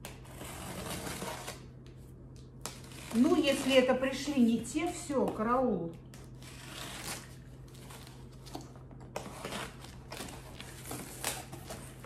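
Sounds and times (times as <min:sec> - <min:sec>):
cutter slitting packing tape: 0:00.0 - 0:01.7, 0:06.4 - 0:07.4
cardboard flaps scraping and rustling: 0:06.8 - 0:12.0.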